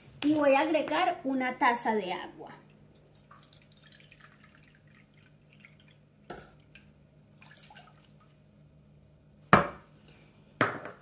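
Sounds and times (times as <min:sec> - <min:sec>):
water trickling into a cup: 0:02.7 - 0:06.0, 0:07.4 - 0:08.5.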